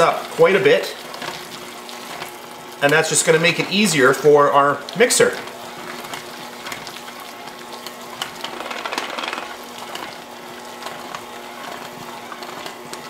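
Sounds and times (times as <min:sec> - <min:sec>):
electric hand mixer running: 0:00.0 - 0:13.0
beaters clicking on glass bowl: 0:08.2 - 0:09.6.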